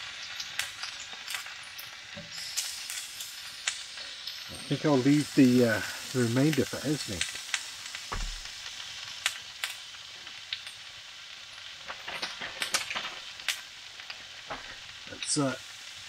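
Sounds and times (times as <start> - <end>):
steak sizzling in pan: 0.0 - 16.0
sharp pops: 7.5 - 9.8.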